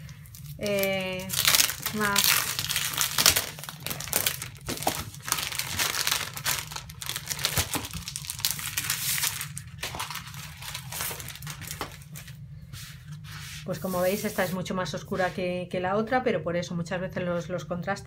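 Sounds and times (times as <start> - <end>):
plastic shrink wrap crinkling: 0.0 - 12.4.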